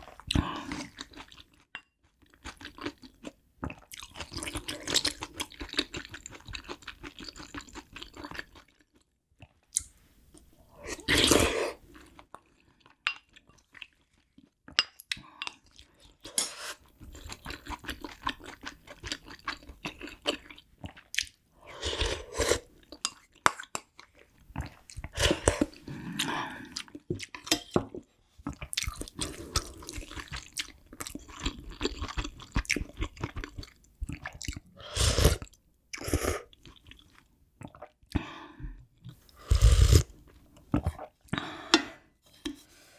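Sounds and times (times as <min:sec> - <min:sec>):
close chewing mouth sounds: 0:00.0 - 0:09.9, 0:17.0 - 0:21.4, 0:28.4 - 0:34.8, 0:35.4 - 0:38.2.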